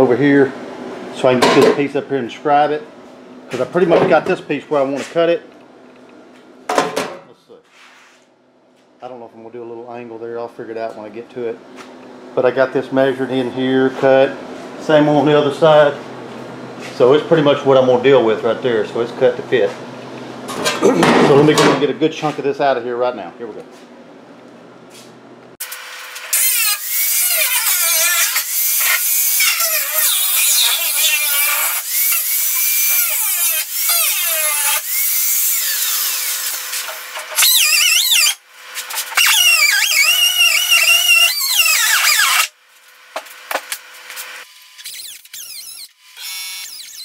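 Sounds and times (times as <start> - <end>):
air cut-off tool whining through metal: 25.6 - 42.5.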